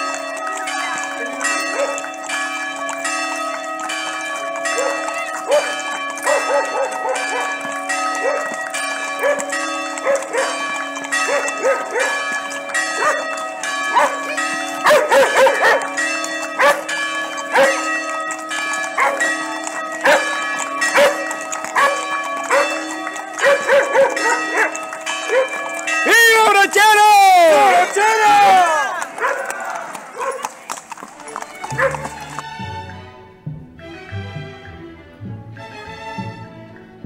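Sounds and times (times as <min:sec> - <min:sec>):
church bells ringing: 0:00.0 - 0:32.9
dog barking: 0:04.8 - 0:07.5, 0:08.2 - 0:08.5, 0:09.2 - 0:09.4, 0:11.3 - 0:12.2, 0:13.0 - 0:13.2, 0:13.9 - 0:14.2, 0:14.8 - 0:15.9, 0:16.6 - 0:16.9, 0:17.5 - 0:17.8, 0:19.0 - 0:19.2, 0:20.0 - 0:20.3, 0:21.0 - 0:21.2, 0:21.8 - 0:22.8, 0:23.4 - 0:25.6, 0:29.2 - 0:29.5, 0:30.2 - 0:30.5, 0:31.7 - 0:32.0.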